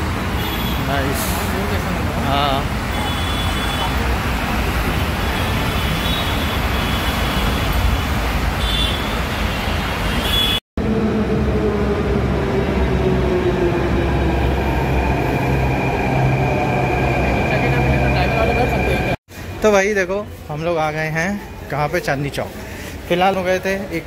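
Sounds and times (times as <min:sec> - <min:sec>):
busy road traffic: 0:00.0 - 0:24.0
train rumble and motor whine: 0:10.8 - 0:19.2.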